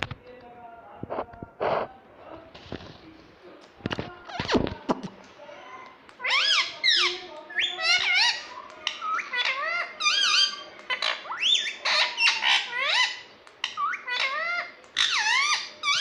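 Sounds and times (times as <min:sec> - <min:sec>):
parrot squawking: 0:06.2 - 0:16.0.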